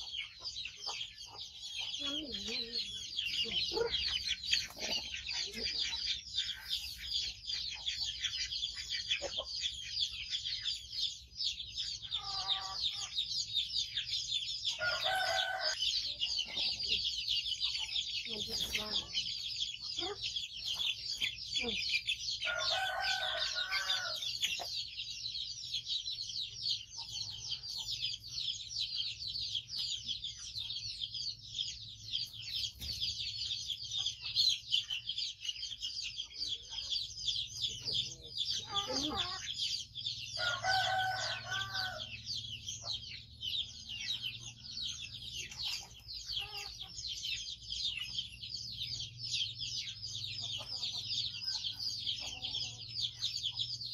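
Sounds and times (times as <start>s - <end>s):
rooster crowing: 14.8s - 15.8s, 22.4s - 24.3s, 40.4s - 42.2s.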